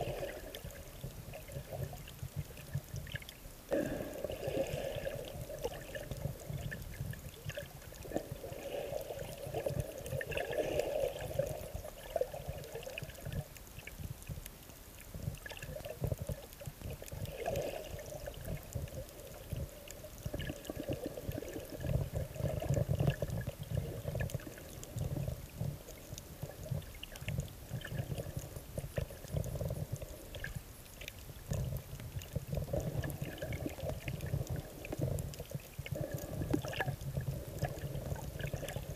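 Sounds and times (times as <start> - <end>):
muffled underwater sloshing: 0.0 - 38.9
faint clicks: 12.6 - 38.9.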